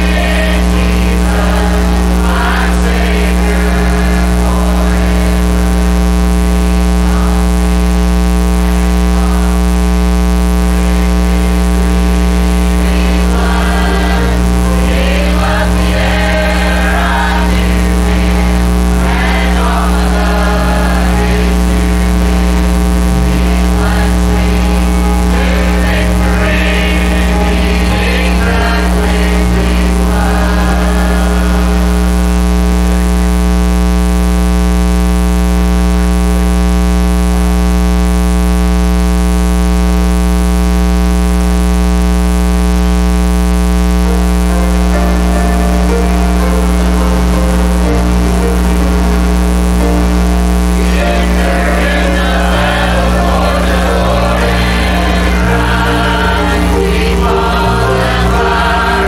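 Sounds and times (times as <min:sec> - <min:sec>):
choir singing a hymn: 0:00.0 - 0:05.8, 0:12.4 - 0:22.5, 0:23.1 - 0:32.5, 0:44.5 - 0:50.1, 0:50.8 - 0:59.0
electrical mains hum: 0:00.0 - 0:59.0.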